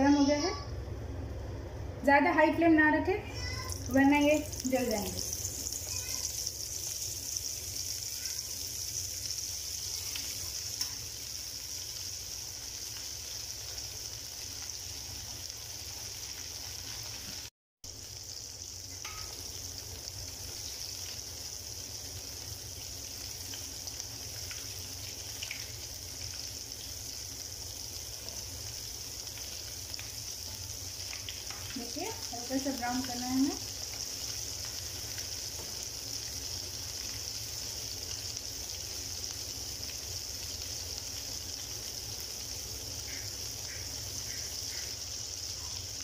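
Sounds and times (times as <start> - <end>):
hot oil sizzling: 0.0 - 46.0.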